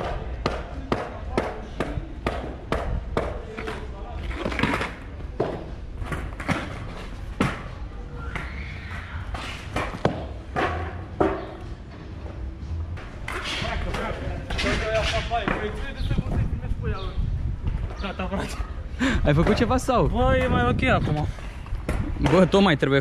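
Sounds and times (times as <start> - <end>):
skateboard clacking on concrete: 0.0 - 7.7.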